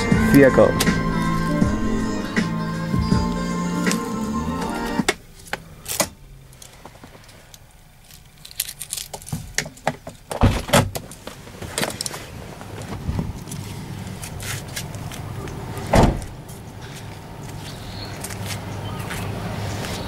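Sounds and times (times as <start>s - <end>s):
car door unlatching clunk: 15.8s - 16.4s.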